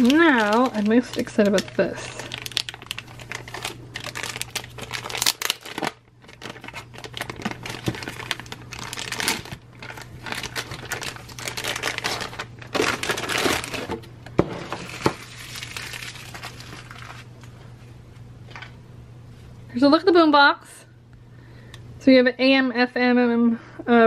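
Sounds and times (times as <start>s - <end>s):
plastic bag crinkling: 0.0s - 17.5s.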